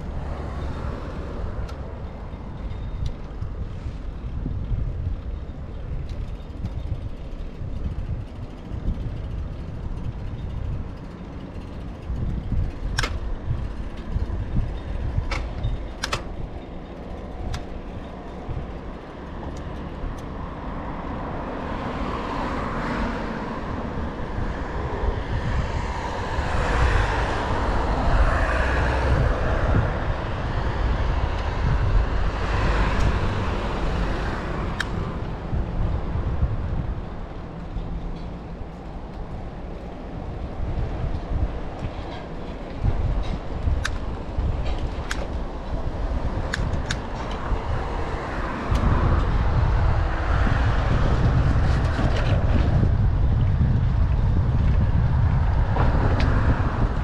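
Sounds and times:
road traffic passing: 0.0 - 57.0
wind rumble on microphone: 0.0 - 57.0.

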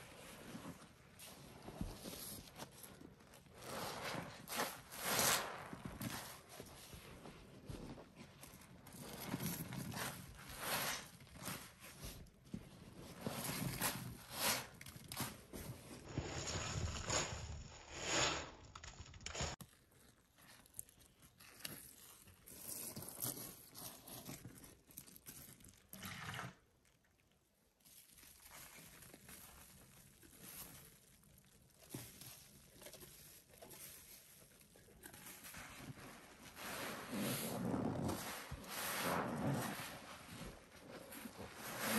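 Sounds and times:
wet sponges squelching: 27.7 - 41.9.

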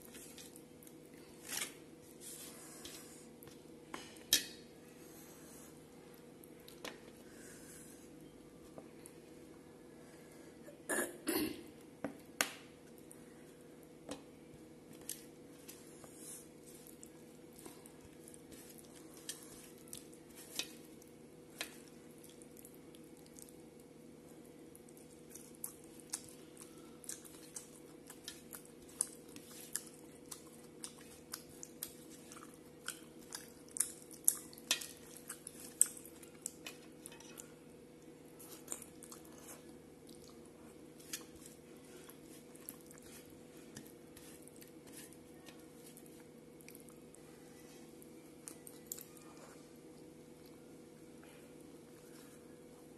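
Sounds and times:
fingers mixing food on steel plate: 14.9 - 22.4, 24.9 - 37.6, 40.8 - 46.3
chewing and wet mouth smacks: 24.8 - 36.9, 38.4 - 43.1.

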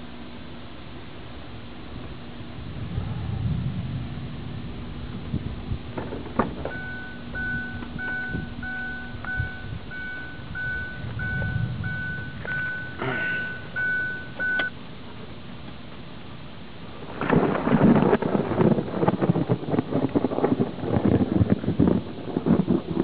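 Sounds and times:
low steady hum: 0.0 - 23.0
electronic beeper beeping: 6.7 - 14.7.

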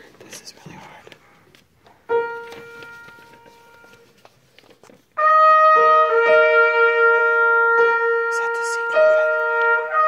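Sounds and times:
piano: 2.0 - 10.0
trumpet: 2.1 - 4.2, 5.1 - 10.0.

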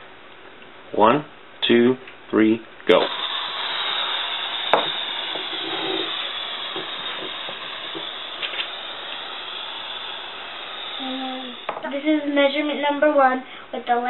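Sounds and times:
air hissing out of balloon: 2.9 - 11.8.

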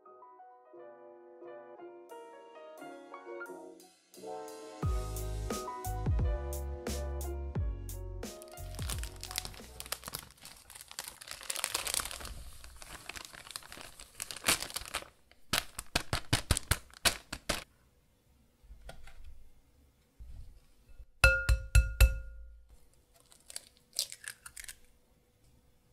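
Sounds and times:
plastic bag crinkling: 8.4 - 17.7, 23.1 - 24.9.

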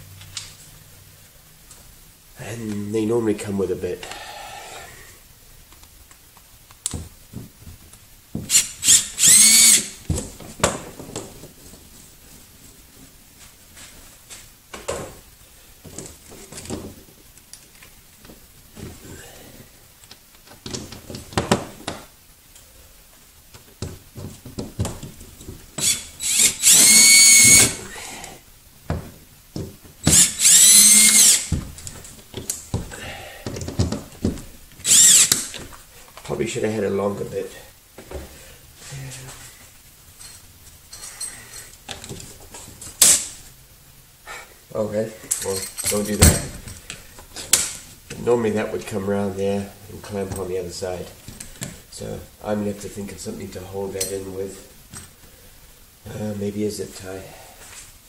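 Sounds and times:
cordless drill motor whine: 8.5 - 9.9, 25.8 - 27.8, 30.1 - 31.5, 34.8 - 35.4.

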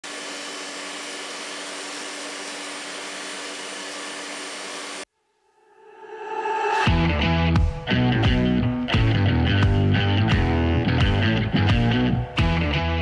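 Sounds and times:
table saw whining: 0.0 - 5.1
music: 5.8 - 13.0.

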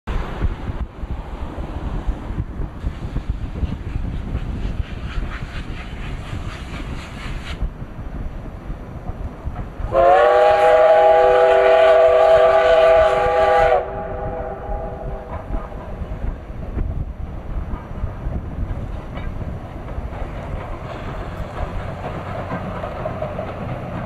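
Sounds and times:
wind rumbling on microphone: 0.1 - 24.0
steam locomotive chuffing: 2.6 - 7.8, 8.9 - 24.0
steam locomotive whistle: 9.9 - 15.4.

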